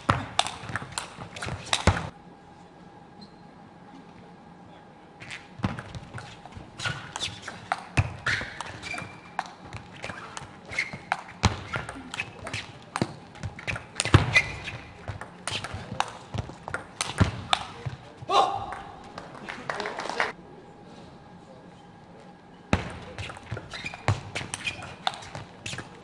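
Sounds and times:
table tennis ball hits and bounces: 0.1s - 2.1s, 5.6s - 17.8s
shoes squeaking on floor: 3.2s - 3.5s, 5.2s - 18.2s, 23.0s - 26.0s.

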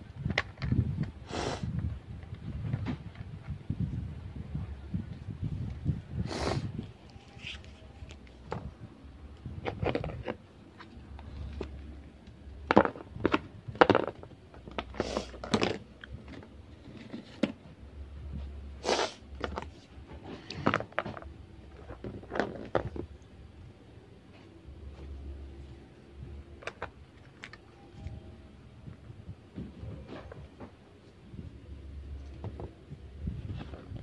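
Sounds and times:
plastic toys clattering: 9.6s - 12.0s, 12.6s - 17.7s, 19.4s - 23.3s, 26.5s - 27.7s.

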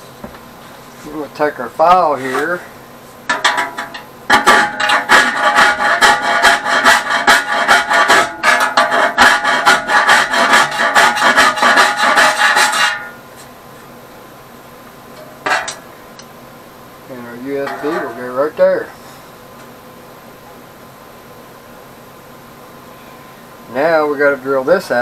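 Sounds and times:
hand file rasping on edge: 4.5s - 13.0s.

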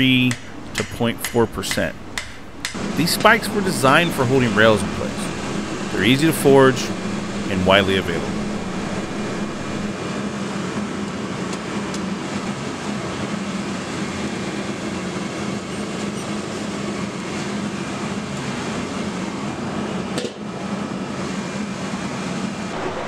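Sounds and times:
machine roar with low hum: 0.0s - 9.9s, 22.7s - 23.0s.

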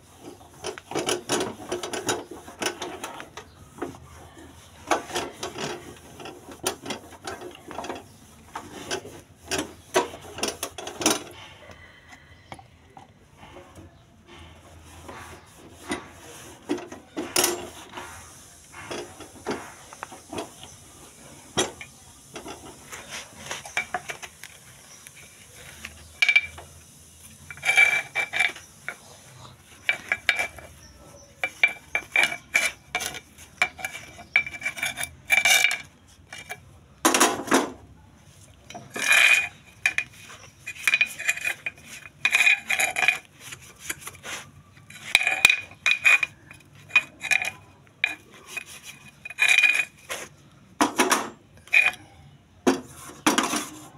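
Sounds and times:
metal parts scraping: 0.0s - 11.5s, 14.4s - 37.8s, 38.4s - 50.4s, 51.0s - 52.2s
metal parts clinking: 27.5s - 29.0s, 29.8s - 30.8s, 31.4s - 36.6s, 38.7s - 44.1s, 44.8s - 50.1s, 51.2s - 52.0s.

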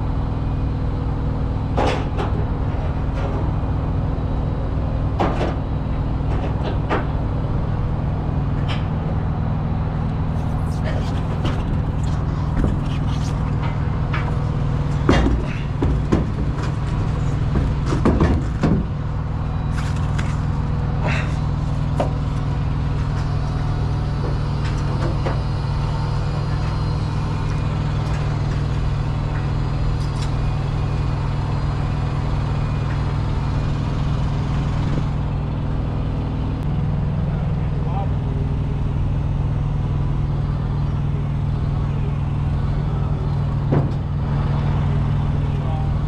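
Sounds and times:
heavy engine idling: 0.0s - 46.0s
tires knocking on wooden deck: 11.3s - 19.0s.

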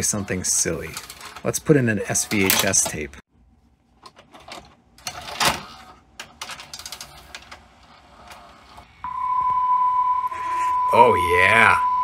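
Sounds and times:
cassette mechanism clicks and ticks: 0.0s - 3.1s
steady high tone: 9.0s - 12.0s.

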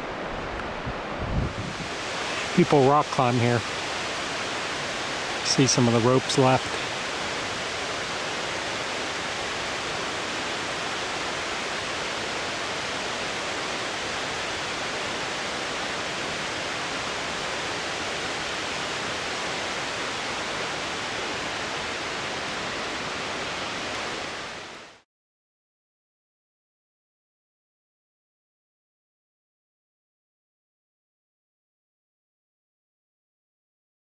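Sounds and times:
flowing river water: 0.0s - 25.0s.

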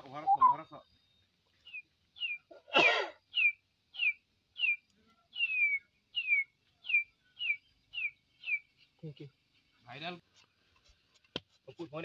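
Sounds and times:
man whistling bird call: 0.2s - 0.7s.

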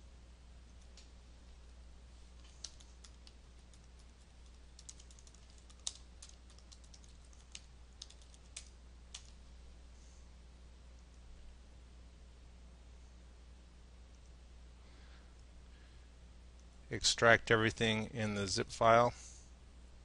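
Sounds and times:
steady low hum: 0.0s - 20.0s
keyboard keystrokes: 2.6s - 9.3s.

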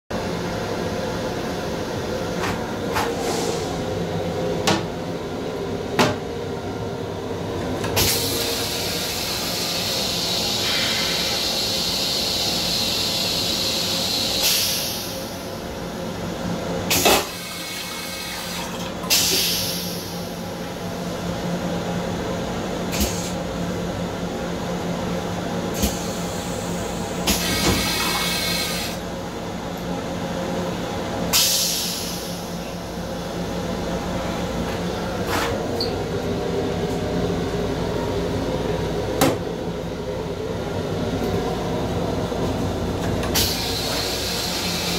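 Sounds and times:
train hum and rumble: 0.1s - 44.9s
toilet flushing: 7.8s - 15.4s, 16.9s - 20.4s, 25.7s - 29.0s, 43.0s - 44.9s.

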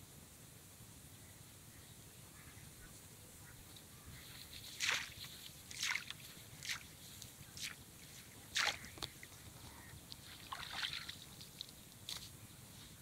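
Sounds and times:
wet net and fish splashy rustles: 4.5s - 7.0s, 7.6s - 9.0s, 10.2s - 11.7s.

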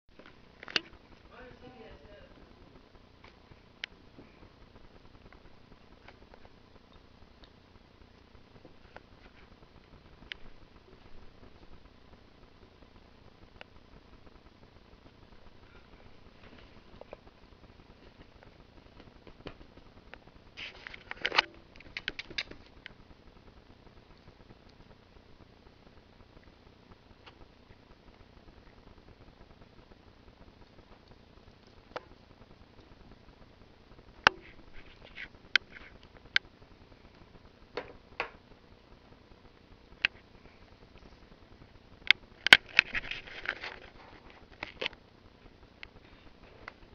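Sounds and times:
sharp clicks: 21.2s - 23.0s.

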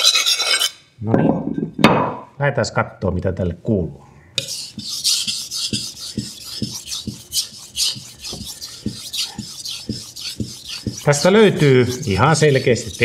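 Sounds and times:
knife scraping on wet whetstone: 4.4s - 13.0s.

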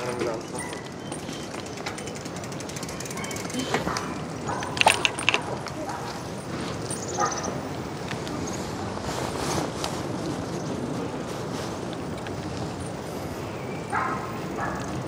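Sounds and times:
scooter tyres on paved path: 0.0s - 15.0s
dog barking: 0.5s - 0.9s, 3.1s - 6.3s, 7.1s - 7.6s, 13.9s - 15.0s
wind rush: 3.8s - 15.0s.

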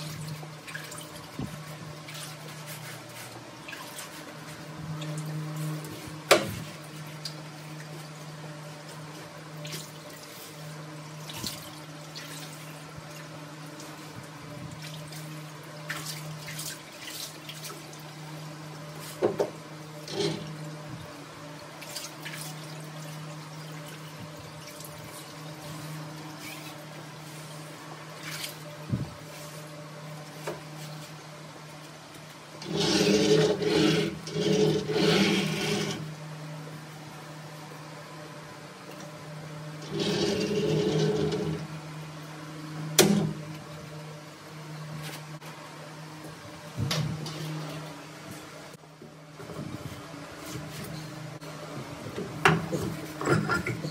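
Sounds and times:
slab saw humming: 32.6s - 36.3s, 39.8s - 41.8s.

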